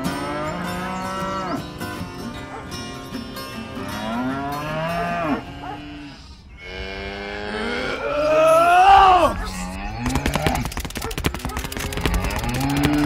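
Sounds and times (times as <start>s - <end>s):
cow mooing: 0.0s - 2.6s, 3.7s - 10.6s.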